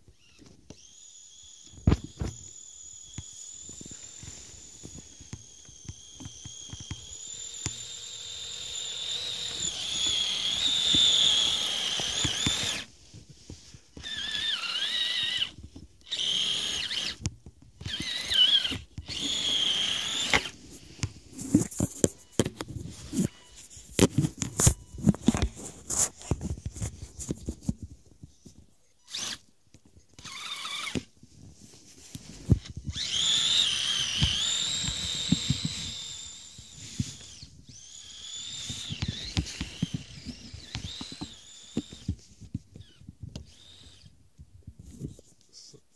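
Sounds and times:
electric motor whining: 0.1s - 12.9s, 14.0s - 20.6s, 32.7s - 42.1s, 42.8s - 44.1s.

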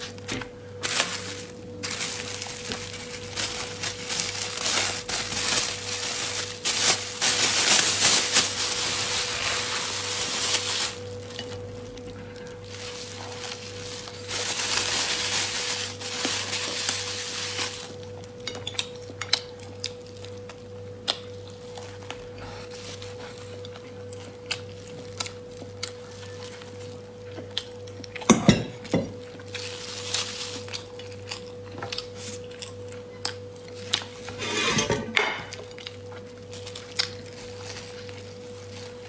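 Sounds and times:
plastic bag crinkling: 0.0s - 18.2s, 29.2s - 32.6s, 35.4s - 39.0s
crisp flatbread chewing: 0.0s - 34.4s, 35.5s - 39.0s
electrical hum: 0.0s - 39.0s.

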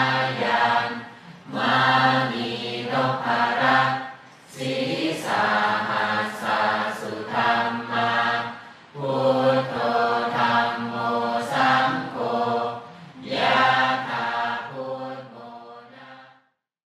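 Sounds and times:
voices chanting in unison: 0.0s - 16.5s.

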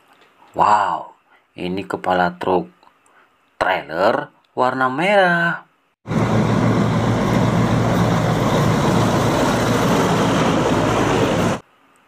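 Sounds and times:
road noise: 6.1s - 11.6s
truck diesel engine humming: 6.1s - 11.6s.

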